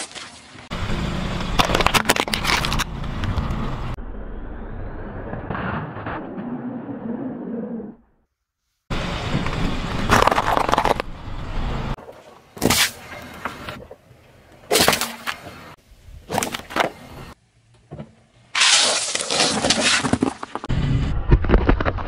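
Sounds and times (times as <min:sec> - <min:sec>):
tyre crushing objects: 0:18.6 - 0:20.7.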